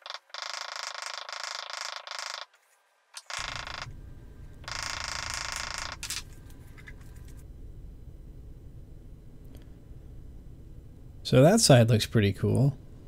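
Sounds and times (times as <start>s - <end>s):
twine creaking and squeaking: 0.0s - 2.5s, 3.2s - 4.0s, 4.6s - 7.4s
low rumble: 3.9s - 11.3s.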